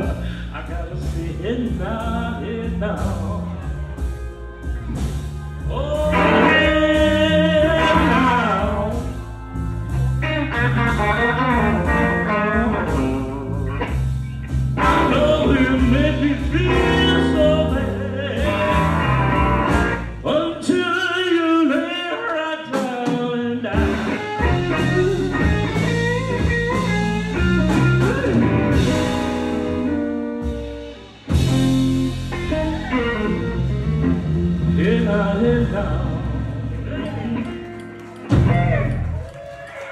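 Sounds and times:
blues band playing: 0.0s - 39.9s
electric guitar bent notes: 6.0s - 20.3s, 23.7s - 39.2s.

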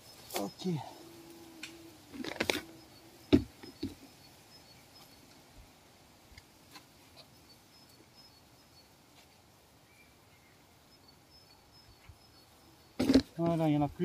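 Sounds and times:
bumblebee buzzing: 0.0s - 9.1s, 10.6s - 13.4s
faint scattered ticks: 0.0s - 14.0s
sharp knocks: 3.3s - 4.0s.

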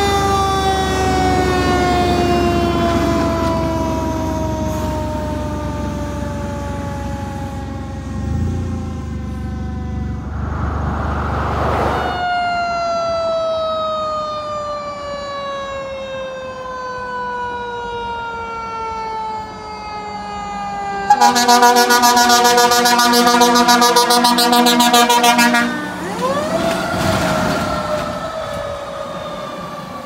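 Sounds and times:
fire engine sirens: 0.0s - 30.0s
low rumble: 10.0s - 12.3s.

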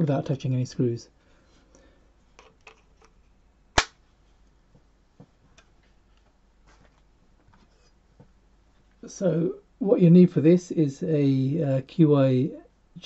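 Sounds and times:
sharp loud click: 3.8s - 4.0s.

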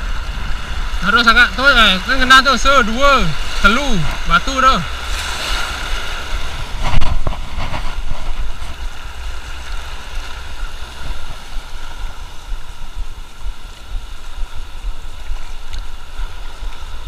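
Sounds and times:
surf washing and breaking: 0.0s - 17.0s
wind rumbling on microphone: 0.0s - 17.0s.

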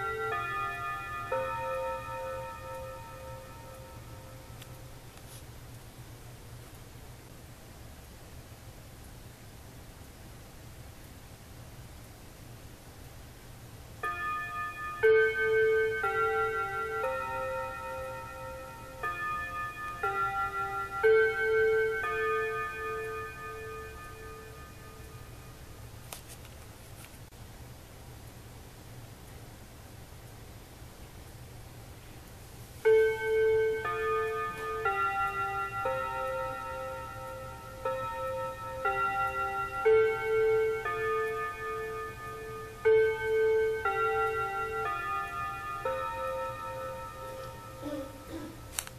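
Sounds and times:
wall clock chime melody: 0.0s - 5.4s, 13.9s - 26.3s, 32.8s - 48.9s.

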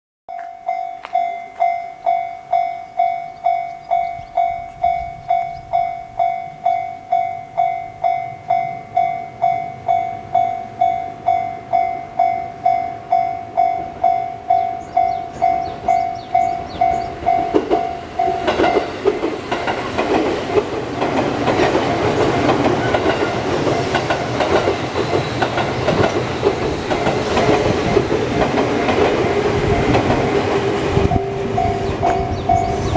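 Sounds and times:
level-crossing bell dinging: 0.3s - 19.0s
train wheels clattering over rail joints: 15.9s - 31.2s.

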